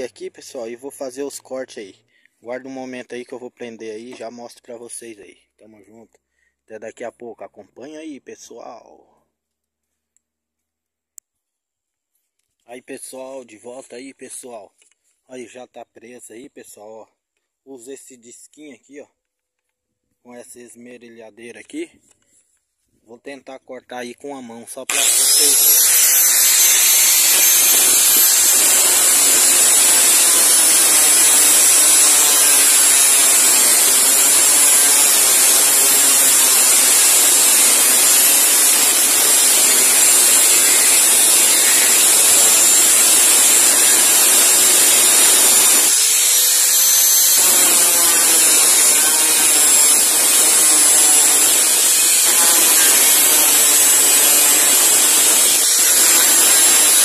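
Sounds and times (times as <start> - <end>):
angle grinder cutting steel: 24.9 - 57.0.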